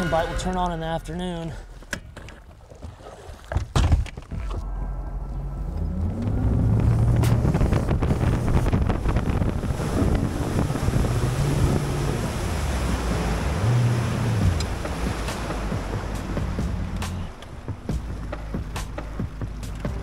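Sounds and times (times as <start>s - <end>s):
outboard motor speeding up: 4.8s - 20.0s
rush of wind and water: 5.8s - 20.0s
trolling motor clunks: 13.7s - 20.0s.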